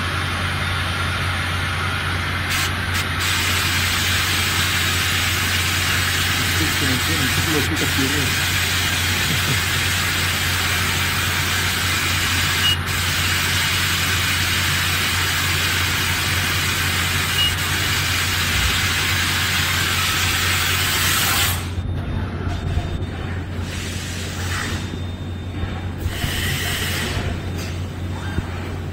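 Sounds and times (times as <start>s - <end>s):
low machine hum: 0.0s - 28.9s
coolant spraying hiss: 2.5s - 21.7s, 23.6s - 24.8s.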